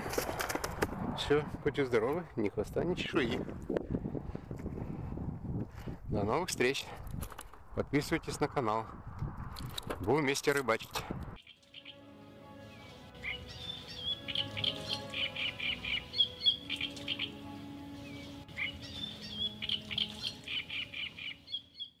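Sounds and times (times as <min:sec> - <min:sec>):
soft sustained music: 0:11.4 - 0:21.8
bird chirping and trilling: 0:11.4 - 0:22.0.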